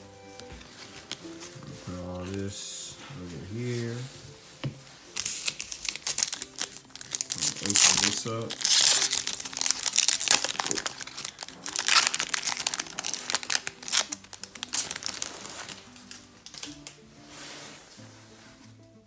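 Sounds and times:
background music: 0.0 - 19.0
foil wrapper crinkling and tearing: 5.1 - 17.0.

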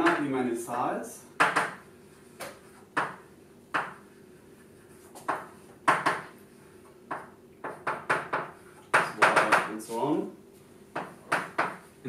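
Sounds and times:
faint steady hum: 0.0 - 12.0
chalk tapping on blackboard: 1.4 - 4.2, 4.8 - 6.4, 7.1 - 10.0, 10.9 - 11.9.

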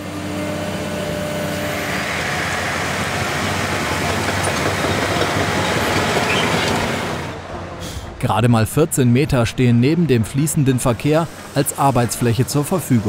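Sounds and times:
bulldozer engine under load: 0.0 - 13.0.

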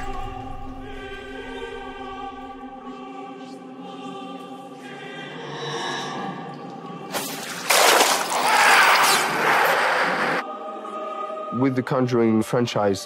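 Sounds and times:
dark choral film music: 0.0 - 13.0.

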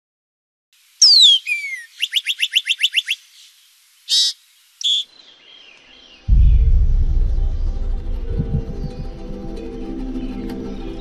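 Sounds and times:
songbird whistle and trill: 1.0 - 3.2, 4.1 - 6.2.

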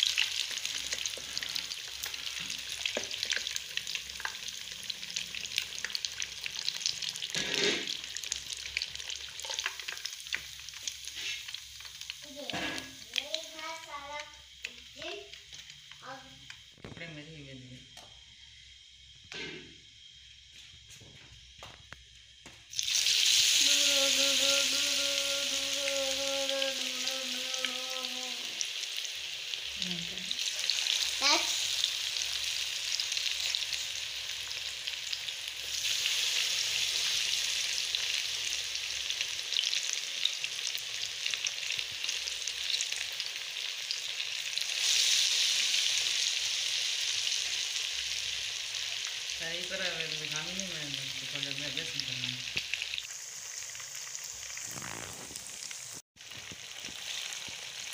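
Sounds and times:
fish deep-frying in oil: 0.0 - 16.9, 22.2 - 57.9.

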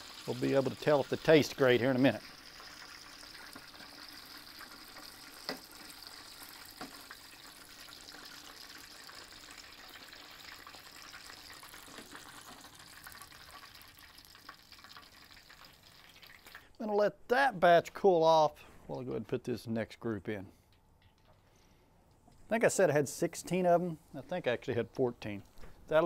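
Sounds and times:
chicken sizzling in hot oil: 0.0 - 16.7.

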